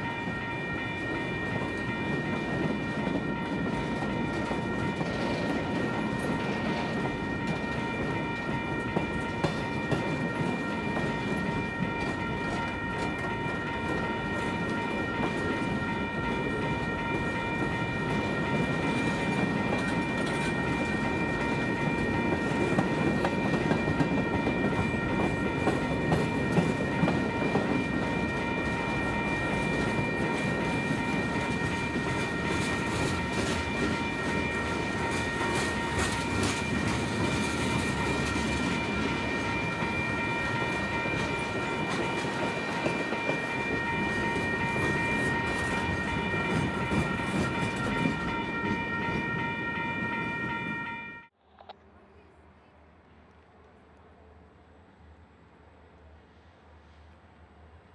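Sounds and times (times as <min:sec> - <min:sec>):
steel wheels rumbling on rail: 0:00.0 - 0:50.8.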